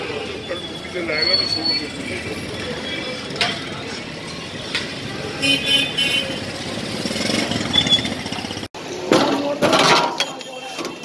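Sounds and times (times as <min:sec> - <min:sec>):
motorcycle and car engines passing: 0:01.8 - 0:08.7.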